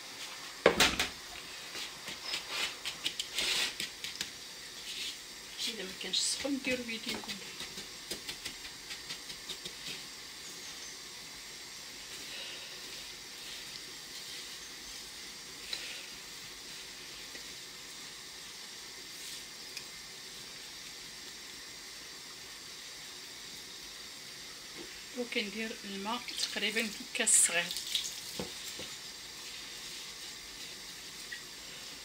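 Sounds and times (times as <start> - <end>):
hands rubbing grains in a bowl: 1.7 - 10.2, 12.0 - 17.4.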